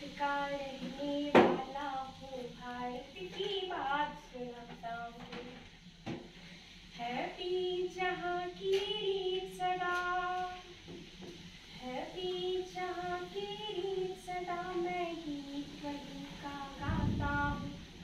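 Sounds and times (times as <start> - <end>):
woman singing solo: 11.8 - 17.9.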